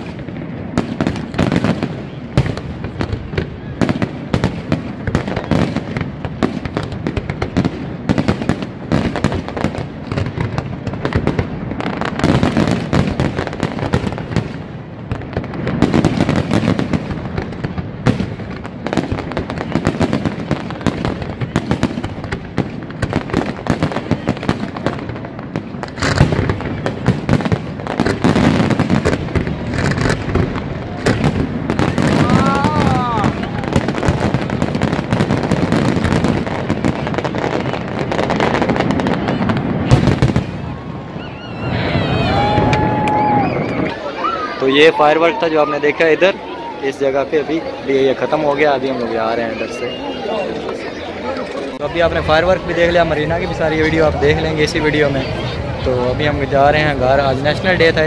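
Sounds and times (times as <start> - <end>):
fireworks bangs and crackling: 0.0 - 58.0.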